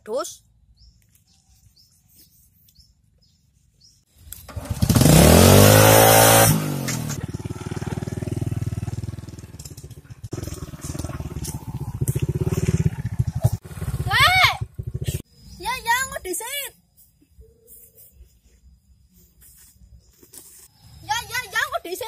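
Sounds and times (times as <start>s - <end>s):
motorcycle engine revving: 4.3s - 15.3s.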